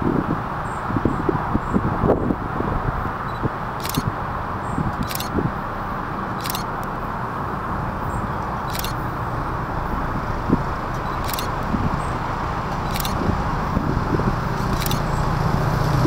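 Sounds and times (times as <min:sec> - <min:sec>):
diesel train rumbling: 0:00.0 - 0:16.0.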